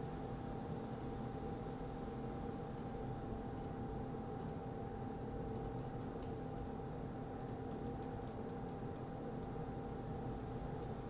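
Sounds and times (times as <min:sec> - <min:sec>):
computer mouse clicks: 0:00.0 - 0:00.3, 0:00.9 - 0:01.1, 0:02.8 - 0:03.8, 0:04.4 - 0:04.6, 0:05.5 - 0:06.7, 0:07.4 - 0:09.5
electrical hum and hiss: 0:00.0 - 0:11.0.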